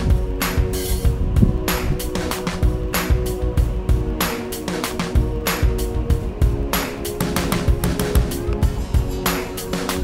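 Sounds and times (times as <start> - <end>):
background music with drum beat: 0.0 - 10.0.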